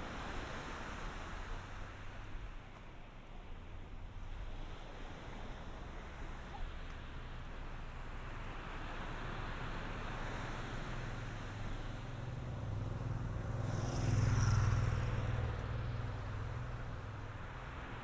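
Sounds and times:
vehicle engine passing: 9.3s - 17.9s.

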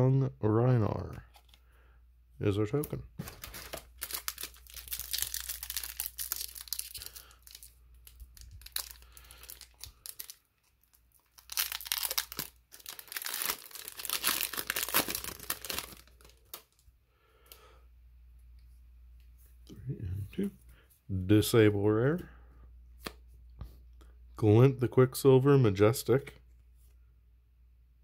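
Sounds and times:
foil pack crinkling and tearing: 3.2s - 16.8s.

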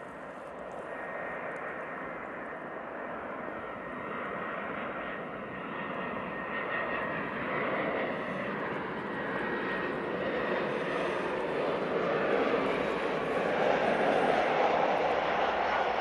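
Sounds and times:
faint high engine whine: 0.0s - 16.0s
jet engines rushing: 6.3s - 16.0s.

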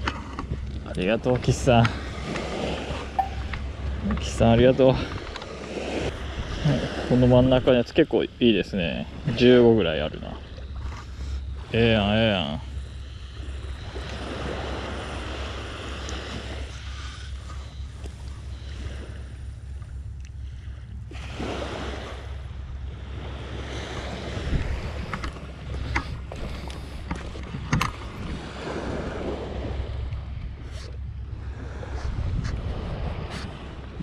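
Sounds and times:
waves washing on beach: 0.0s - 34.0s
wind buffeting microphone: 20.9s - 34.0s.

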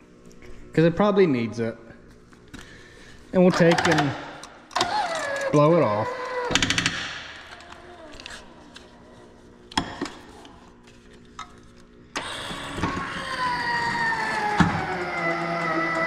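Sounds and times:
electric motor whining: 12.2s - 16.0s.

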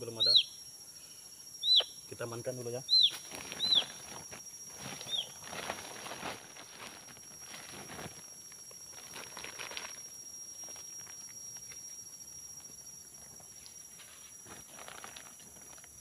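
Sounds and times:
boots stepping on dry leaves: 3.1s - 8.2s
plastic sack crackling: 3.1s - 11.2s, 14.4s - 16.0s.

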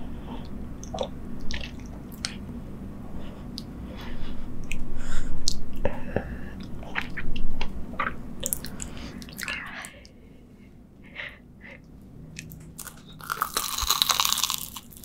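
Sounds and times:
wet mouth chewing: 12.4s - 15.0s.

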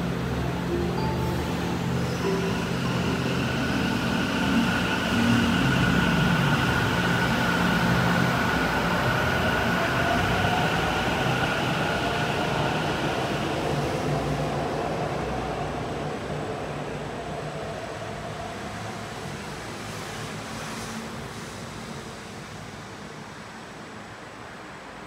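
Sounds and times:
train running: 0.0s - 14.6s.

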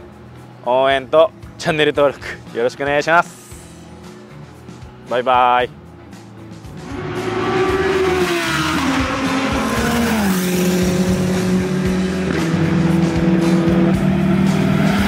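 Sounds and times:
racing car engine revving: 6.8s - 15.0s.

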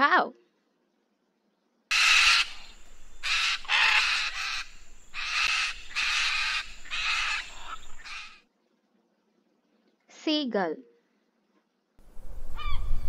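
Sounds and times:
macaw squawking: 1.9s - 8.4s, 12.6s - 13.0s.

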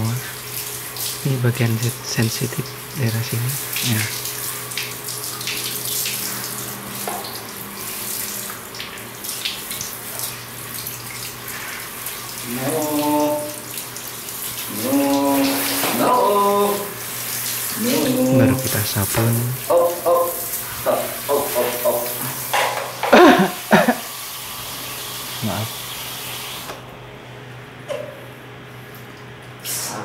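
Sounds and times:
water splashing on tiled floor: 3.7s - 17.8s, 19.2s - 24.2s
water spraying from shower head: 11.5s - 26.7s
short held pitched sounds: 17.8s - 20.7s.

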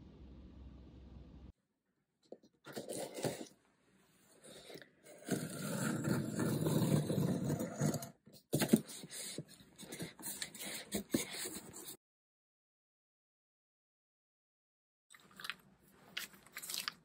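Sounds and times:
plastic wrapping crinkling: 15.2s - 17.0s.

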